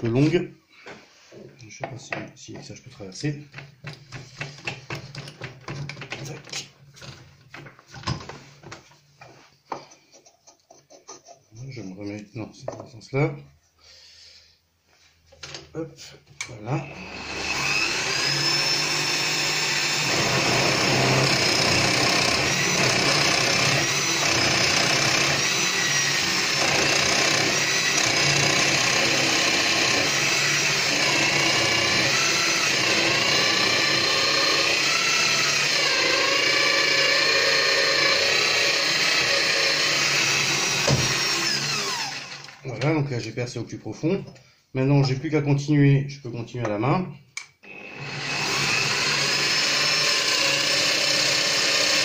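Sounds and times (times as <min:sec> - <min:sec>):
drill press motor whine: 0:16.8 - 0:42.6, 0:47.6 - 0:52.0.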